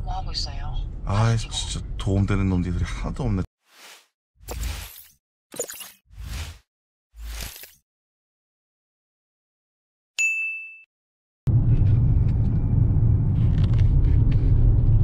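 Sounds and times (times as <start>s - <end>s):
car cabin road rumble: 11.5s - 15.0s.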